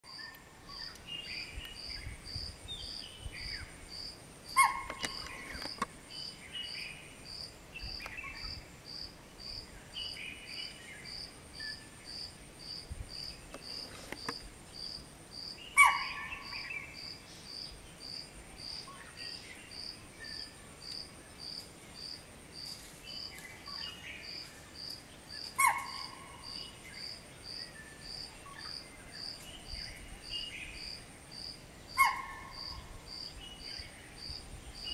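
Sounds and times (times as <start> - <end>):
faint bird chirps: 0.1 - 3.8
pulsing insect chirp: 0.1 - 34.9
deer alarm call: 4.6 - 5.0, 15.8 - 16.3, 25.6 - 26.2.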